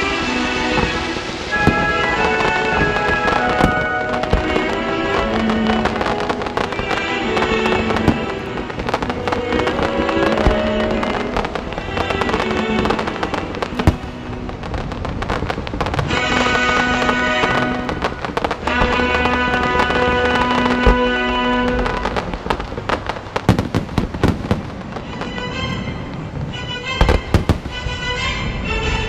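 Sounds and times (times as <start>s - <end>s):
loud music: 0.0s - 14.8s, 16.0s - 22.2s
fireworks crackling and banging: 0.0s - 29.0s.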